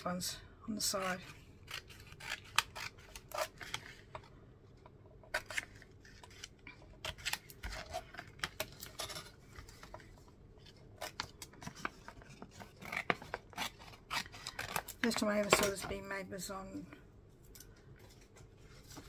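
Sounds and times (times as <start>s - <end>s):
scissors snipping paper: 0.8s - 4.2s, 5.3s - 9.3s, 11.0s - 15.8s.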